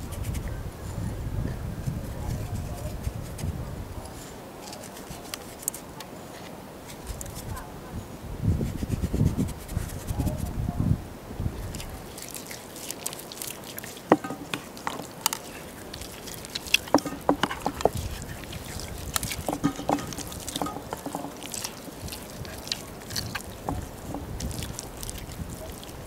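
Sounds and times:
raw chicken squelching: 4.1 - 5.9, 11.6 - 26.0.

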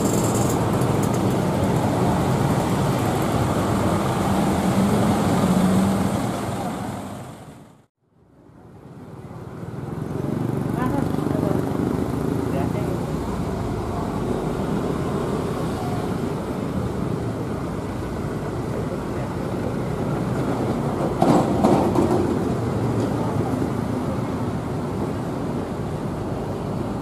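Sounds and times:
wheels knocking and clattering: 0.0 - 3.9, 20.3 - 23.3.

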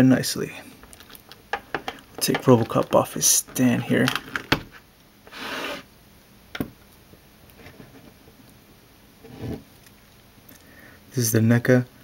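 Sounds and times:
plastic figure handling: 0.8 - 4.8.

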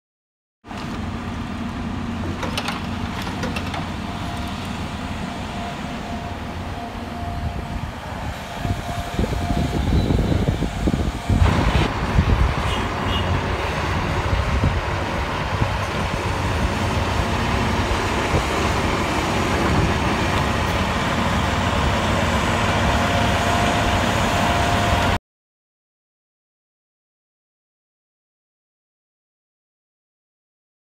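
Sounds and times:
excavator diesel engine running: 0.7 - 25.2.

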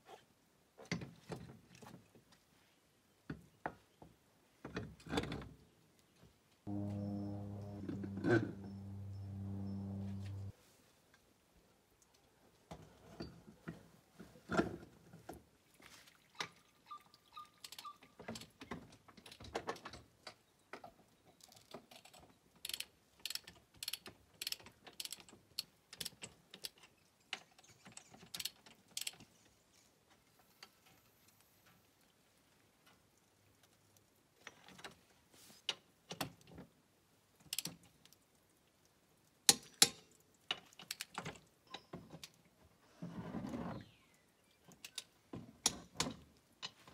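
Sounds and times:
socket wrench ratcheting: 22.7 - 25.3.

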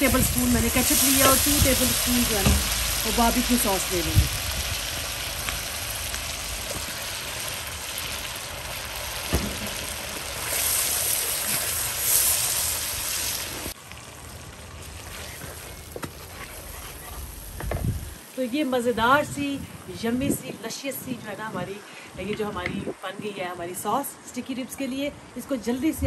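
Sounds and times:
sauce sizzling and bubbling in a wok: 0.0 - 18.4.

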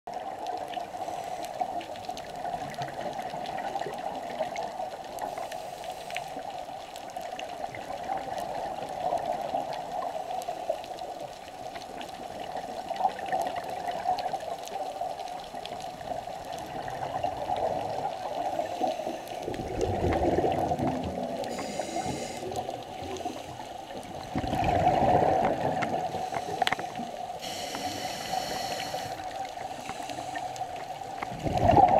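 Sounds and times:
underwater watery wash: 0.1 - 31.9
gurgling regulator bubbles: 6.4 - 31.9.

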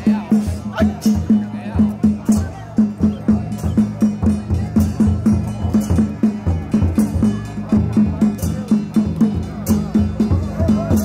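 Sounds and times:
drums beating: 0.0 - 11.0.

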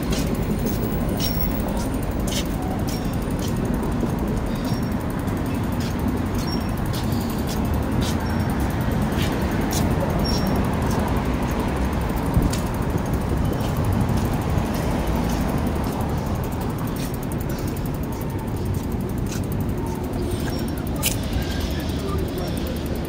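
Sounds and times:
bike rolling on sidewalk: 0.0 - 23.0
wind rumble on microphone: 10.3 - 16.4.

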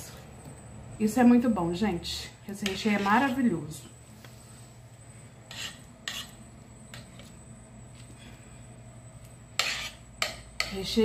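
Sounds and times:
utensil scraping cake filling: 5.4 - 7.4, 9.5 - 10.8.

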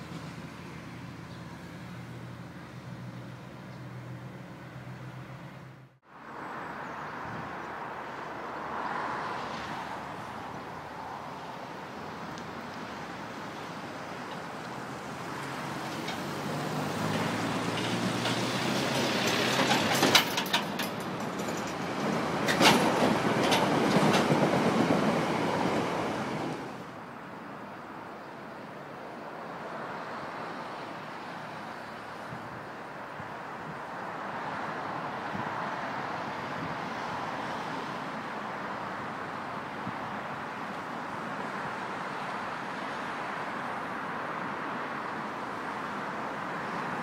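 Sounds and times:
faint outdoor background: 0.0 - 47.0
train wheel rumble: 15.4 - 26.8.

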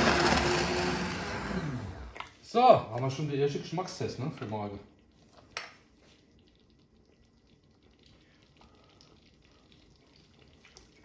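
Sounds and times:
sauce bubbles popping: 3.0 - 11.0.

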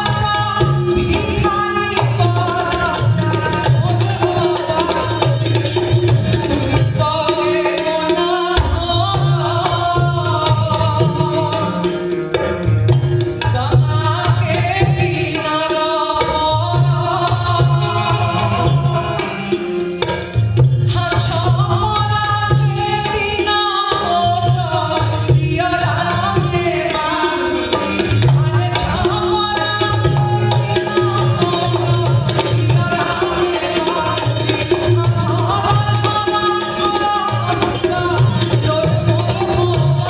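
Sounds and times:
hand drum rhythm: 0.0 - 40.0
woman singing folk song: 13.5 - 19.1, 20.9 - 27.6.

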